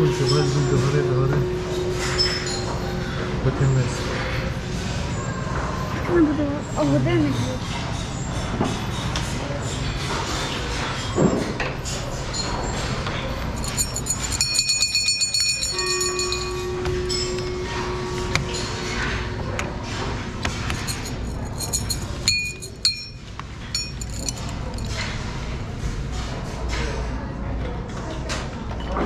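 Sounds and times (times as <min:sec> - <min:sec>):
bell-like ringing tone: 0:00.0 - 0:04.0, 0:13.6 - 0:19.6, 0:20.7 - 0:23.2, 0:23.8 - 0:24.9
metal cylinders clinking: 0:13.4 - 0:19.2, 0:20.4 - 0:25.1.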